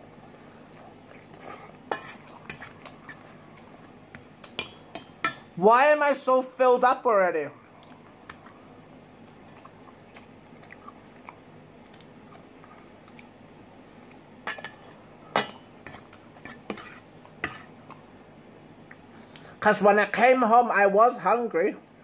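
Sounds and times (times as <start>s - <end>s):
chewing salad: 0.6s - 5.5s, 7.6s - 19.6s
fork clinking against metal bowl: 4.4s - 5.5s.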